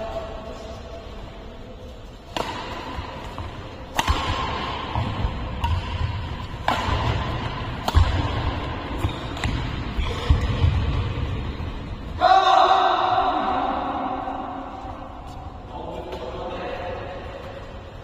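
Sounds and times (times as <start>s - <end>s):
racket striking shuttlecock: 2.3s - 11.0s.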